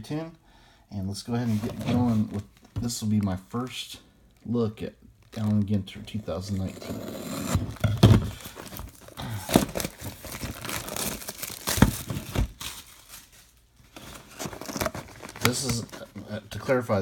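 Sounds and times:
plastic shrink wrap crinkling and tearing: 5.2s - 16.6s.

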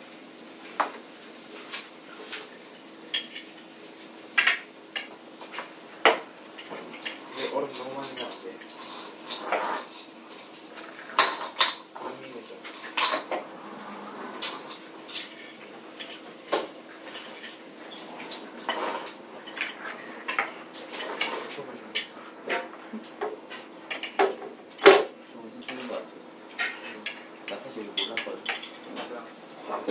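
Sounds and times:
cutlery clinking on plates: 26.5s - 29.1s.

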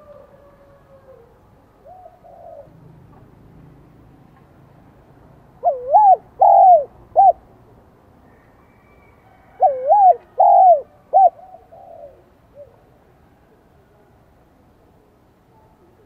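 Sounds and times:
dove cooing: 1.0s - 2.8s, 5.6s - 7.4s, 9.4s - 12.9s.

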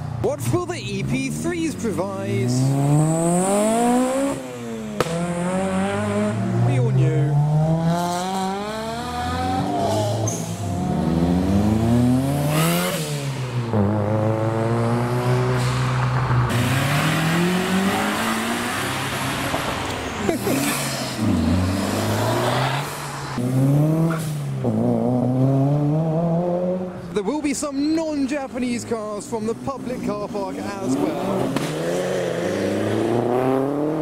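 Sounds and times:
cars accelerating past: 1.0s - 27.1s, 29.5s - 34.0s
sharp pop: 4.9s - 5.4s, 31.5s - 31.8s.

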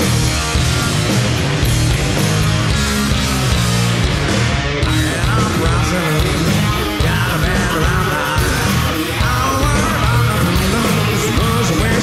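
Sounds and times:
hard rock band playing: 0.0s - 12.0s
man singing lead vocals: 4.8s - 12.0s.

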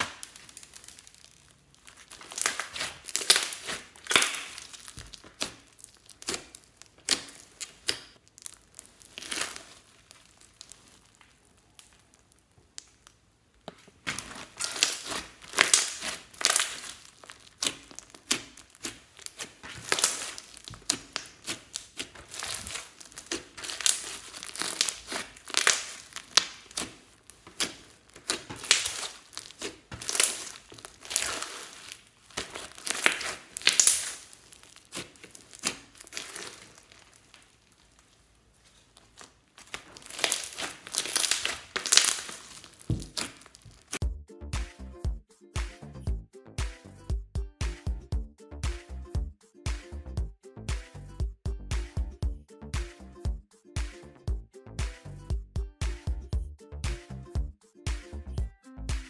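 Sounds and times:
slime crackling as squeezed: 0.0s - 44.0s.

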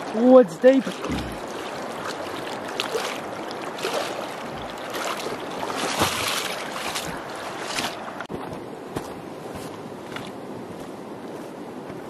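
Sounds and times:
river water rushing: 0.0s - 8.3s
wading splashes: 0.0s - 8.3s.

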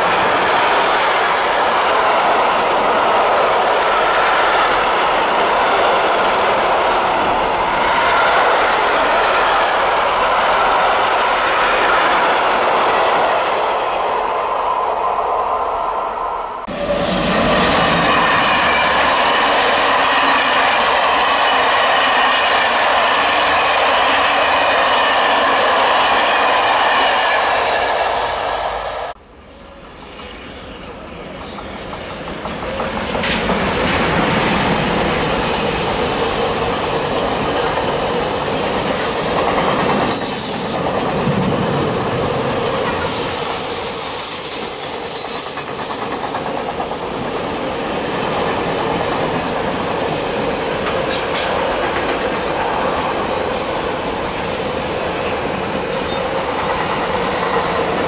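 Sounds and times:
electric locomotive approaching: 0.0s - 58.0s
train running past: 0.0s - 58.0s
clattering train wheels: 29.9s - 58.0s
high wheel squeal: 53.5s - 56.7s.

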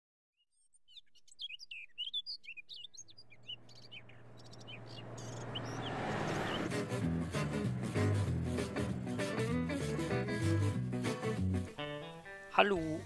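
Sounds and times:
songbirds chirping: 0.4s - 6.9s
truck engine drone: 3.2s - 11.0s.

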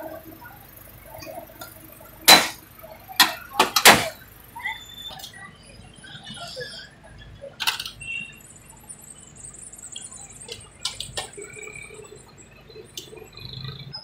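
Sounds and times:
faint background chatter: 0.0s - 10.8s.

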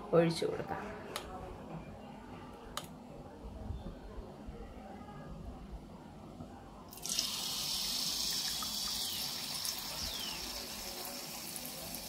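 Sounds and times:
batter sizzling in hot oil: 6.9s - 12.0s.

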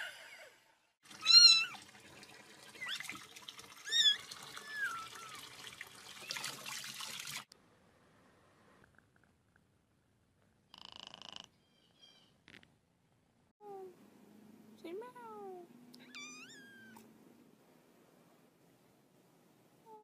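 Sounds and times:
cat meowing: 16.0s - 17.0s.

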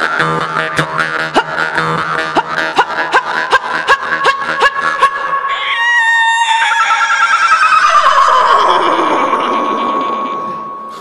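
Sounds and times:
warbling synth tone: 0.0s - 11.0s
falling synth sweep: 6.5s - 11.0s.

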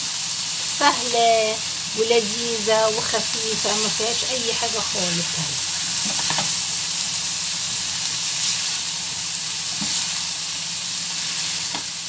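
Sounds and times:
food sizzling in frying pan: 0.0s - 12.0s
spatula striking pan: 6.0s - 6.6s, 11.7s - 11.9s.

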